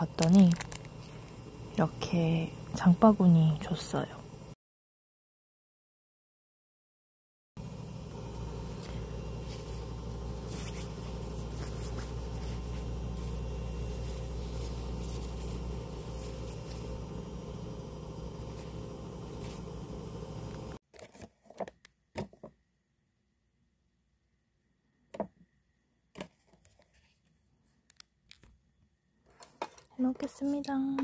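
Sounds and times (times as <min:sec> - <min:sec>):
fabric bag rustling and crinkling: 0:00.0 - 0:01.1, 0:08.8 - 0:17.3
steady low hum: 0:00.0 - 0:04.6, 0:07.6 - 0:20.8.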